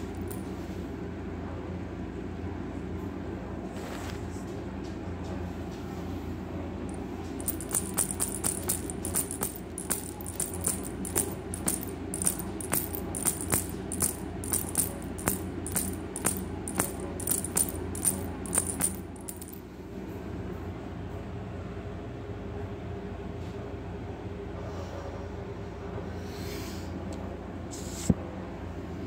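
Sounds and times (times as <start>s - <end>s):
toy tail tapping wooden floor: 7.4s - 19.6s.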